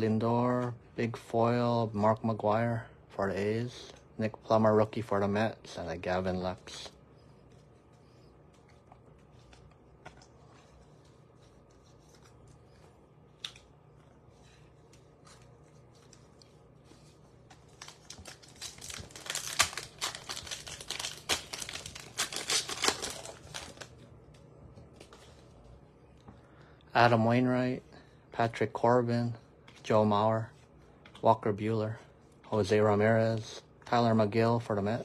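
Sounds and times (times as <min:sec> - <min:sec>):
cards ticking: 0:17.6 - 0:23.9
foil wrapper crackling: 0:17.6 - 0:24.0.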